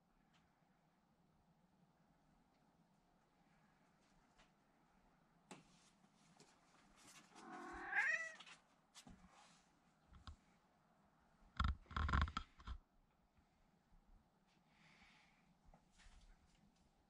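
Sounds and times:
cat meowing: 7.4 - 8.4.

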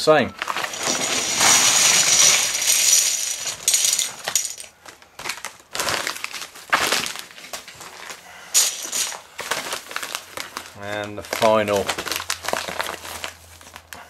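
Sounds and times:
paper bag rustling: 0.4 - 4.6, 5.2 - 13.9
bricks rattling: 0.4 - 4.7
plastic bricks clattering: 0.4 - 10.6.

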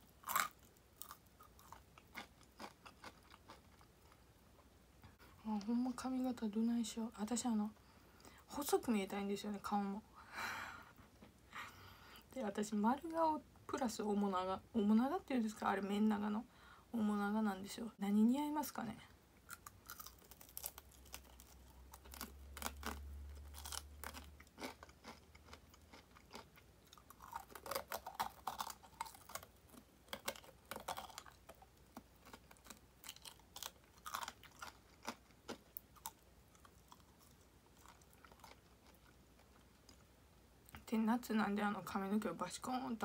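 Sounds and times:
chewing and crunching fried chicken: 0.2 - 4.7, 19.5 - 40.1.

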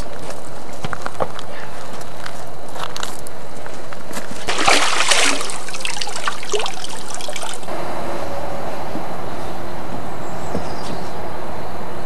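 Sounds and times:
water splashing: 4.4 - 7.7
water trickling and dripping: 4.5 - 7.7.

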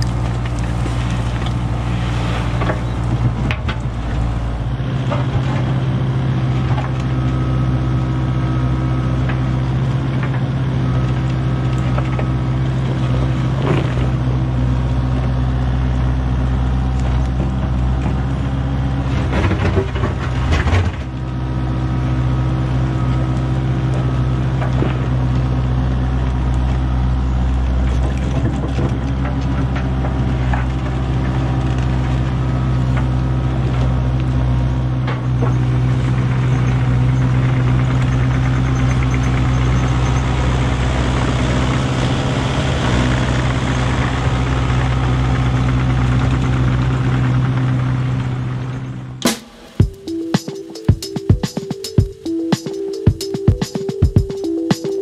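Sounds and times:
bucket scraping soil and stones: 0.0 - 4.3
excavator diesel engine running: 0.0 - 55.0.

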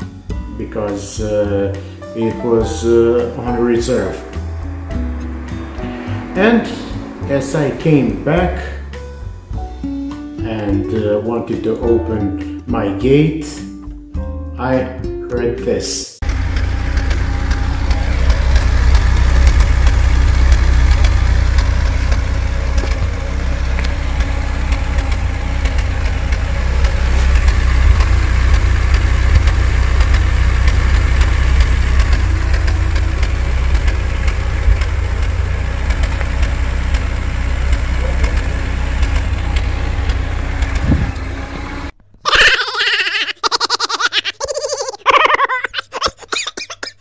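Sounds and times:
car engine idling with misfire: 16.2 - 41.9.

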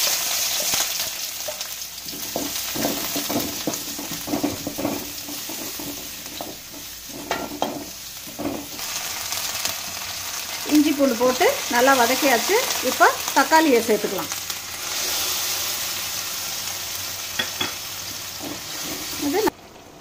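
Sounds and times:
onions sizzling in hot oil: 0.0 - 20.0
spatula scraping a metal pan: 2.1 - 8.8.

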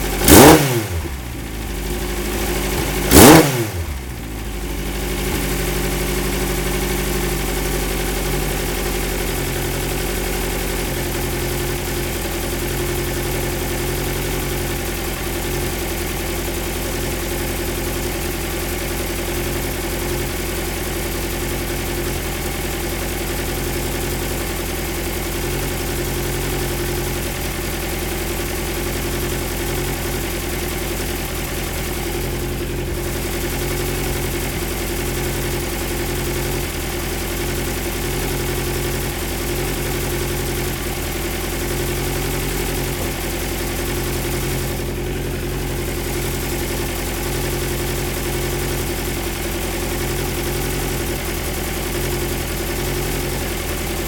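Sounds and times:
car engine idling: 0.0 - 54.0.

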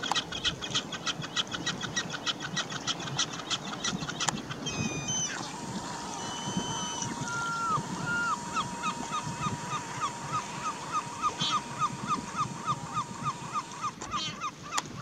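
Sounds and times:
wind and water wash: 0.0 - 15.0
gull long call: 4.5 - 15.0
thin steady high tone: 4.6 - 13.9.

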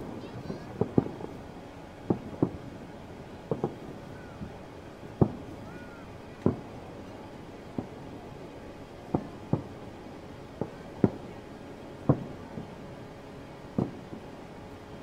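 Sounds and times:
fireworks bangs: 0.0 - 5.8, 6.4 - 6.8, 7.6 - 8.3, 9.0 - 9.9, 10.6 - 11.4, 12.0 - 13.0, 13.7 - 14.4.

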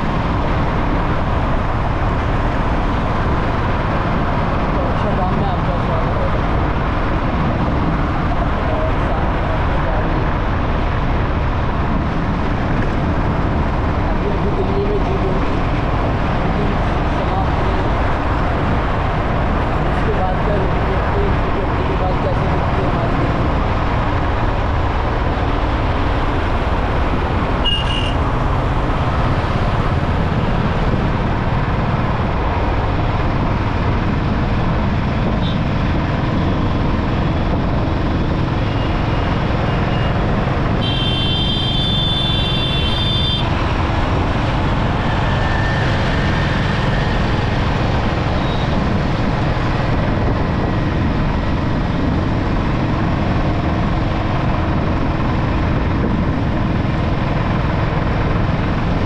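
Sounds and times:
motorbike wind and road noise: 0.0 - 59.0
vehicle horn honking: 27.6 - 28.2, 40.8 - 43.4.

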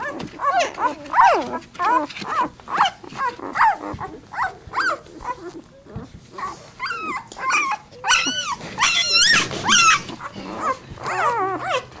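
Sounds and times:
puppy crying high-pitched squeals: 6.4 - 11.9.

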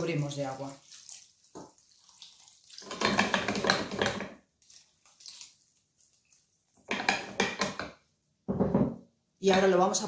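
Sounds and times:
faint water trickles: 0.0 - 3.2, 4.4 - 6.9
water pouring into pot: 0.0 - 5.7.

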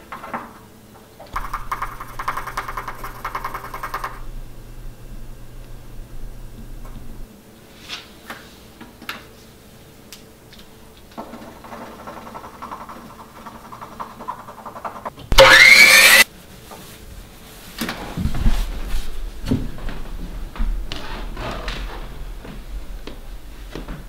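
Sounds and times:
loud sound rising in pitch: 15.3 - 16.2.

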